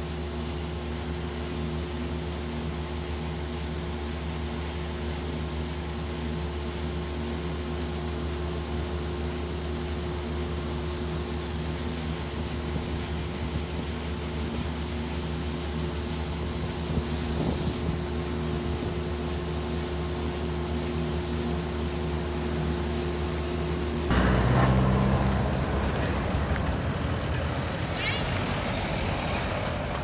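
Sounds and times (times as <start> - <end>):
vehicle engine hum: 0.0 - 30.0
vehicle passing: 24.1 - 30.0.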